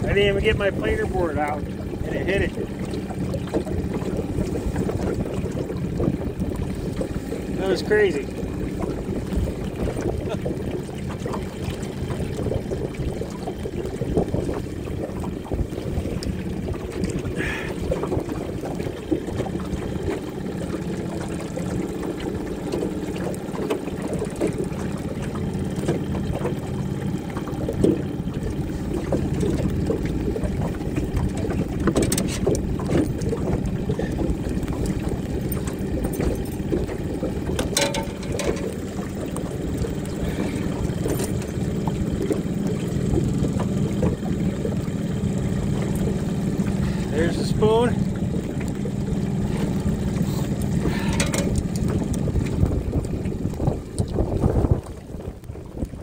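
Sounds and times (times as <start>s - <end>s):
boat motor humming: 0.0s - 56.0s
water noise: 0.0s - 56.0s
wind noise: 8.7s - 19.8s, 49.5s - 56.0s.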